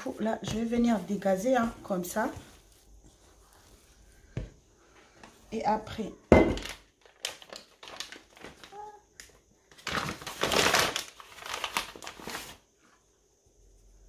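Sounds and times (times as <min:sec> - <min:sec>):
flour rustling on cutting board: 0:00.0 - 0:06.4, 0:10.0 - 0:13.0.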